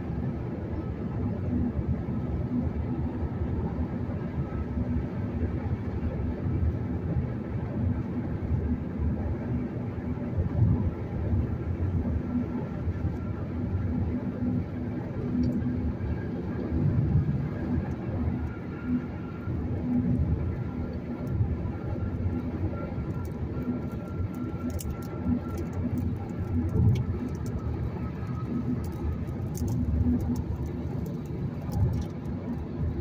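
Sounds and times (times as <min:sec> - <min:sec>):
faint steady whine: 0:00.0 - 0:33.0
tyre and road noise: 0:22.2 - 0:33.0.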